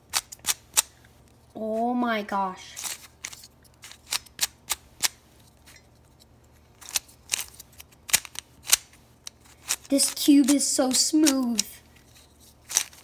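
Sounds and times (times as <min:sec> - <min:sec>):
puzzle cube clicking as turned: 0:00.1 - 0:00.9, 0:02.8 - 0:05.2, 0:06.8 - 0:11.8, 0:12.6 - 0:13.0.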